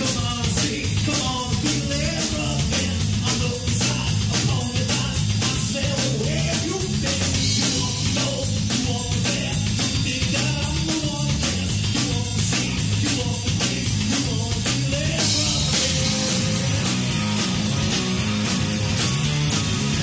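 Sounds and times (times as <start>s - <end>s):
drum kit with cymbal beat: 0.0s - 20.0s
electric bass line: 0.0s - 20.0s
electric guitar: 0.0s - 20.0s.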